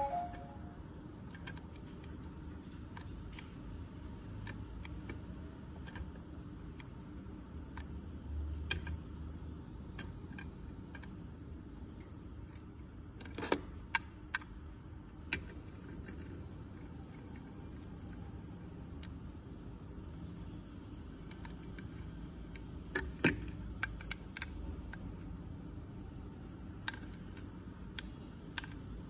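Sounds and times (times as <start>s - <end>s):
remote control buttons clicking: 0.0s - 0.6s
low steady hum: 0.0s - 29.0s.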